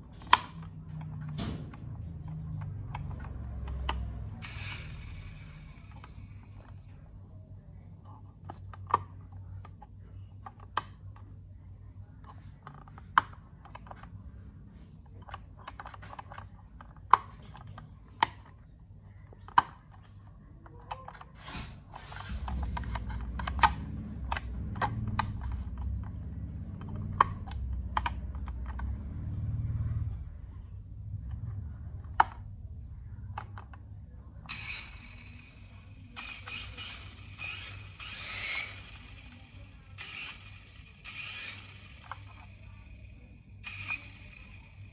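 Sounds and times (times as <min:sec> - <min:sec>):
plastic control sticks clicking: 0:00.1 - 0:06.7, 0:22.0 - 0:29.0.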